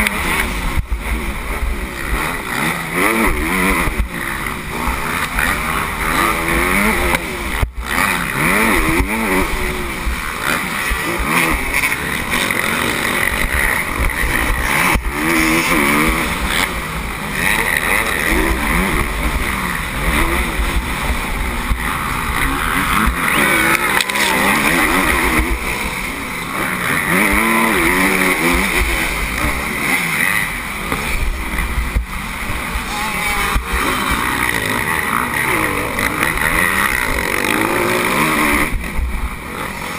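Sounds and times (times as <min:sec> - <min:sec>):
motorbike engine revving: 0:00.0 - 0:39.9.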